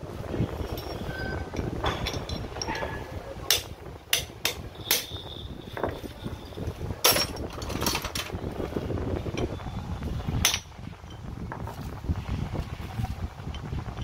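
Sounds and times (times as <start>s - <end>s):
hand tools knocking on metal: 0.6s - 6.0s.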